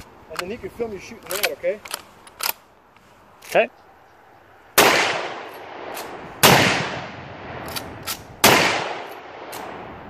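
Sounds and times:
rifle lever action clicks: 1.2s - 2.6s, 7.6s - 8.3s
rifle shots echoing: 4.8s - 9.9s.

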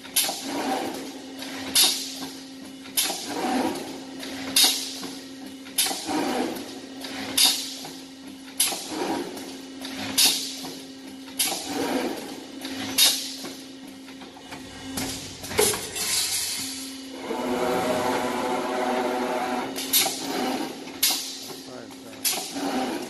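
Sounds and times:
machine hum: 11.6s - 23.0s.

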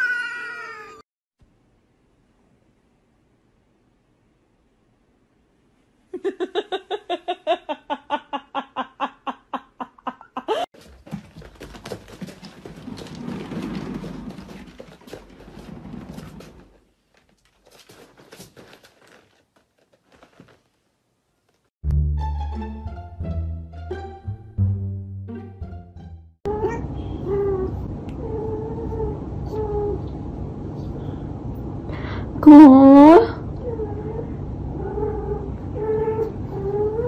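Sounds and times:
cat exercise wheel rumbling: 10.8s - 20.7s
rustles: 10.8s - 21.7s.

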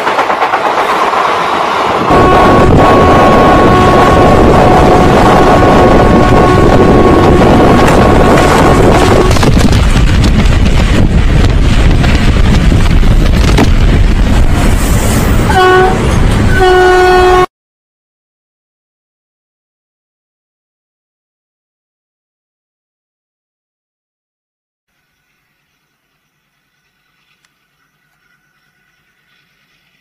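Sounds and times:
moving train rumble and wind rush: 0.0s - 17.5s, 24.9s - 30.0s
train horn: 2.0s - 9.5s, 15.4s - 17.5s.

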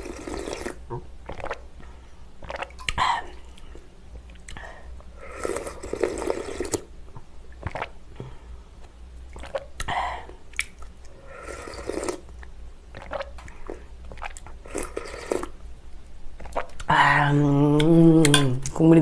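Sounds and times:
person slurping broth: 0.0s - 1.6s, 5.2s - 6.9s, 11.2s - 12.3s, 13.0s - 15.6s.

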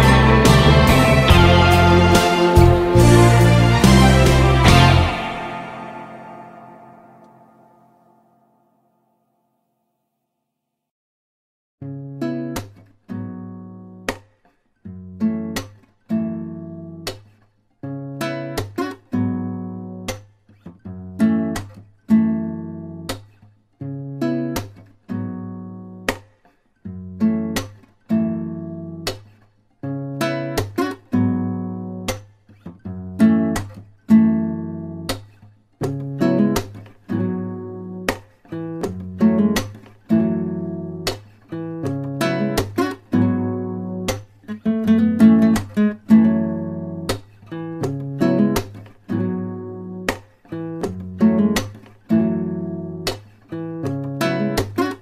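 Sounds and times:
acoustic guitar strummed chords: 0.0s - 7.9s, 35.8s - 55.0s.

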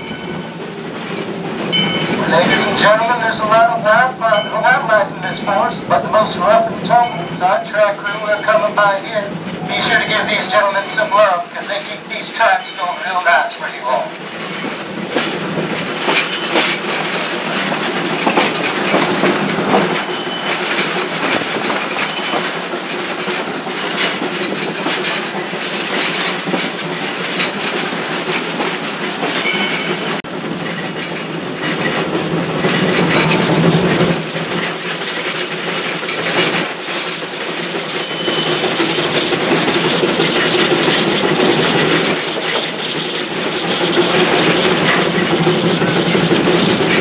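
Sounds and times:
train car rattling: 0.0s - 47.0s
train wheels clickety-clack: 0.0s - 47.0s
high wheel squeal: 16.1s - 16.8s, 20.0s - 20.8s, 29.4s - 47.0s.

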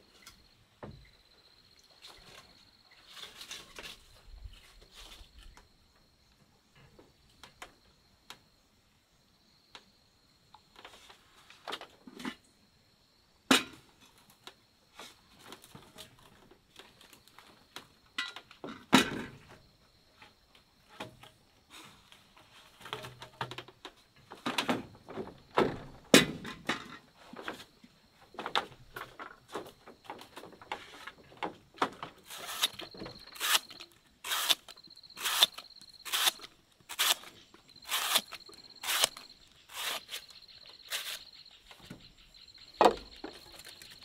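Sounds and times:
knocks and thuds of hand work: 24.4s - 27.6s, 42.8s - 43.4s.

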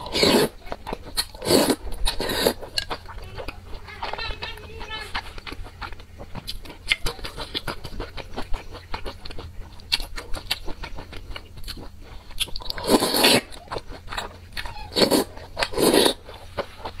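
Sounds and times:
loud slurps: 0.0s - 0.6s, 1.2s - 2.8s, 12.5s - 13.6s, 14.9s - 16.5s
wet chewing: 0.0s - 17.0s.

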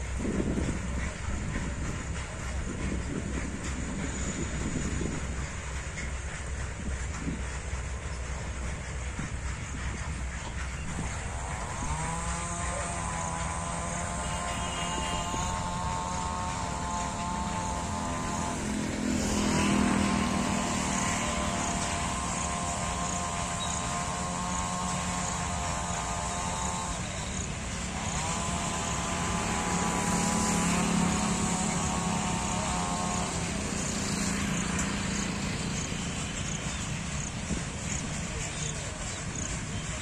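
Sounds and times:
drawn-out rising whine: 0.0s - 40.0s
freight train rumbling past: 0.0s - 40.0s.

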